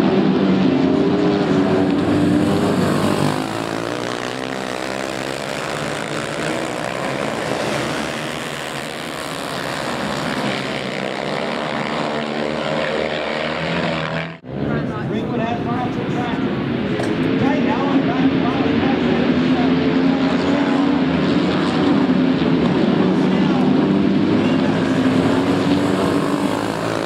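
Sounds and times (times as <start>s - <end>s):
motorcycle engines revving hard: 0.0s - 27.0s.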